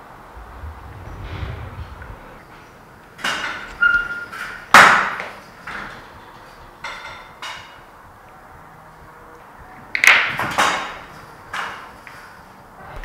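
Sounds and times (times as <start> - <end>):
echoing bangs and knocks: 0.4 - 2.8.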